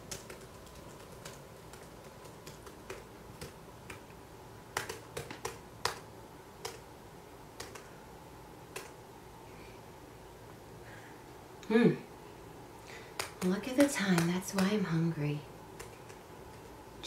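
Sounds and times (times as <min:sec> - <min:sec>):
laptop keyboard typing: 0:00.0 - 0:06.9, 0:07.5 - 0:08.0, 0:08.6 - 0:09.0, 0:12.9 - 0:15.0, 0:15.7 - 0:16.7.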